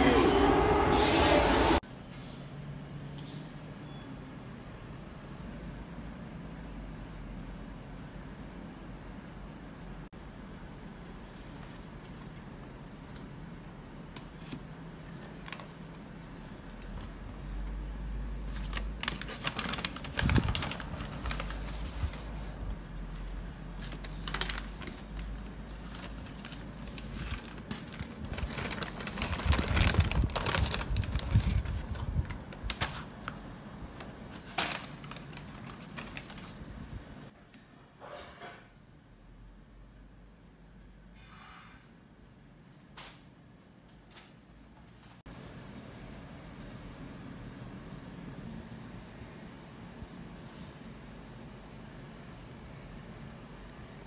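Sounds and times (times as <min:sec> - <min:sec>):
paper bags crinkling: 0:18.4 - 0:33.4, 0:34.0 - 0:36.7.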